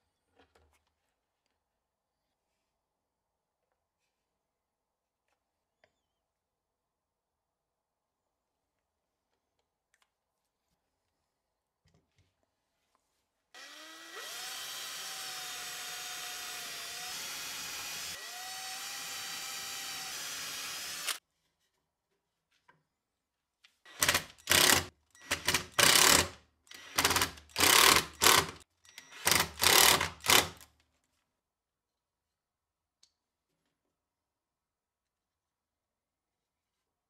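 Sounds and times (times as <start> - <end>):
drill driving screws in bursts: 13.6 - 21.2, 23.9 - 30.6
power drill drilling plywood: 13.6 - 21.2, 23.9 - 30.6.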